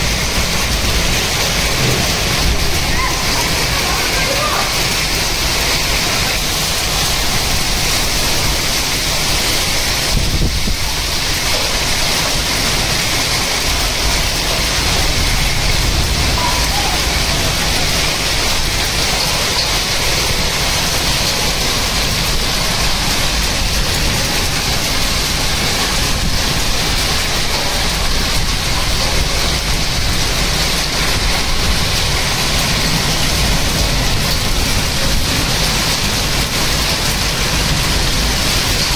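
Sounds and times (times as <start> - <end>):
heavy rain and hail on concrete: 0.0 - 38.9.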